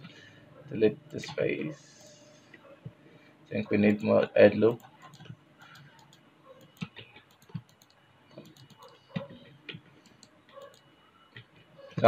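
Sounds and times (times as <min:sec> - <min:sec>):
mouse and keyboard clicks: 0:04.8 - 0:12.0.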